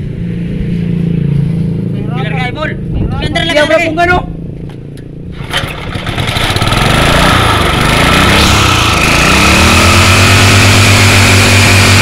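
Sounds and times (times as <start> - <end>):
small gasoline engine revving: 5.3 - 12.0.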